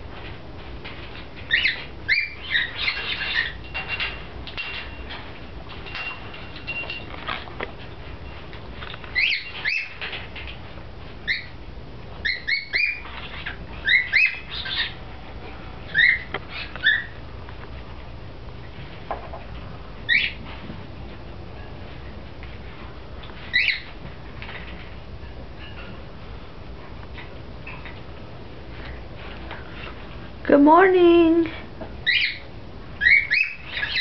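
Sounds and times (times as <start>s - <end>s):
parrot chirping and whistling: 1.5s - 3.6s, 9.2s - 10.0s, 11.3s - 11.5s, 12.2s - 13.1s, 13.8s - 15.0s, 15.9s - 17.2s, 20.1s - 20.4s, 23.5s - 23.9s, 32.0s - 32.4s, 33.0s - 34.0s.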